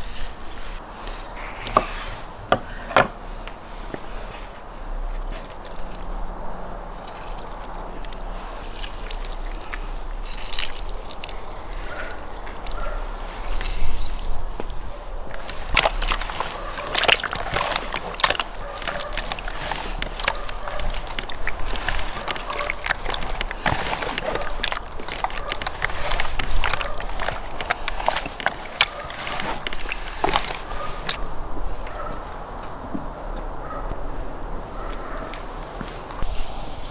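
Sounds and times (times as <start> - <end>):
hands squelching fish in marinade: 0.0 - 1.5, 5.2 - 6.1, 7.0 - 31.2.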